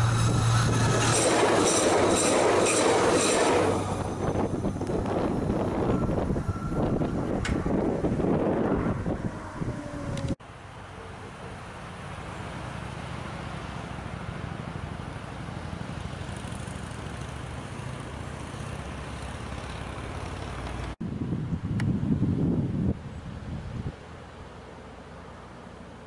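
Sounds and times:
distant diesel train engine: 0:00.0 - 0:21.0, 0:23.1 - 0:26.0
outdoor background noise: 0:00.0 - 0:26.0.

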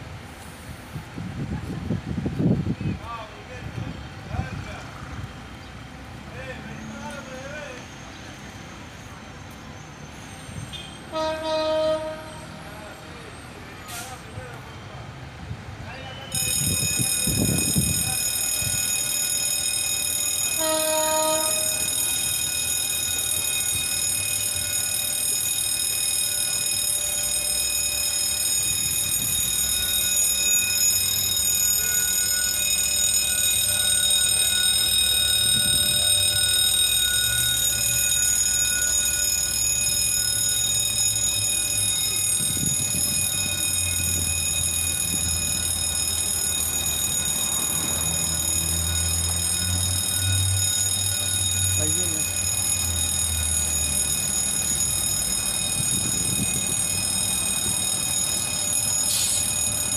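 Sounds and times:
train horn: 0:10.7 - 0:12.8, 0:20.5 - 0:21.9
level crossing bell ringing: 0:16.3 - 0:59.9.

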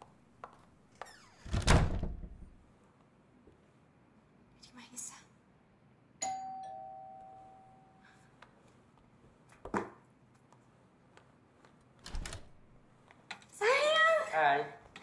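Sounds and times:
two-note doorbell chime: 0:06.2 - 0:08.1
front door opening clatter: 0:12.0 - 0:12.6.

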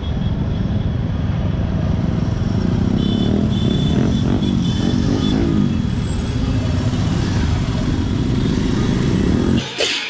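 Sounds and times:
motorbike engines in traffic: 0:00.0 - 0:10.0.

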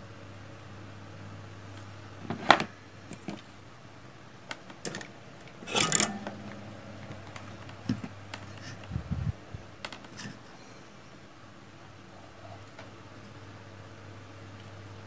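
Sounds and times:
low steady hum: 0:04.9 - 0:11.2
scraping clatter: 0:05.6 - 0:08.8.

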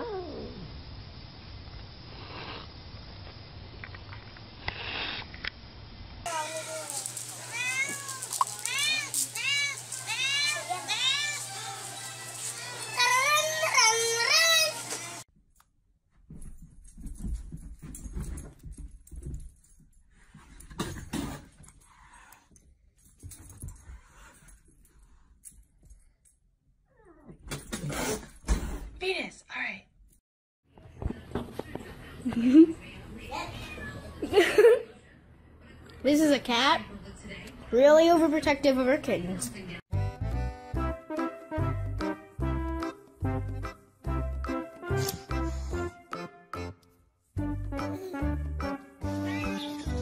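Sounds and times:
cat hissing: 0:02.1 - 0:02.7, 0:04.6 - 0:05.3.

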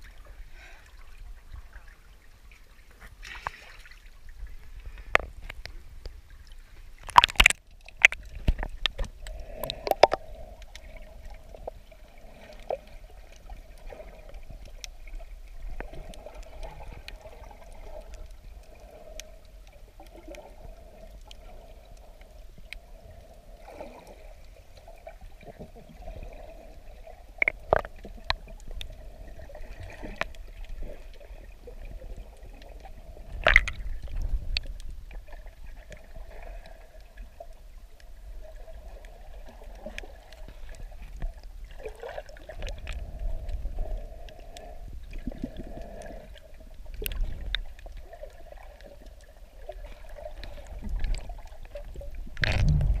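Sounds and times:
muffled underwater gurgling: 0:08.8 - 0:13.2, 0:42.7 - 0:53.0.

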